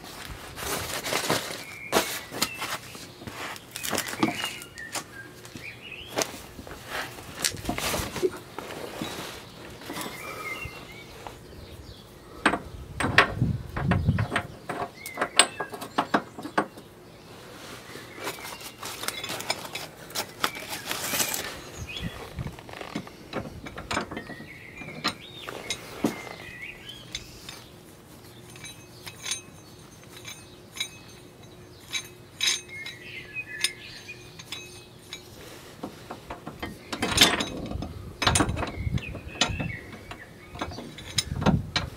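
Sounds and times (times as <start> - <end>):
metal tools clinking on steel: 3.7 - 6.4, 12.3 - 16.9, 18.2 - 41.9
socket wrench handling: 28.4 - 35.3, 36.2 - 41.9.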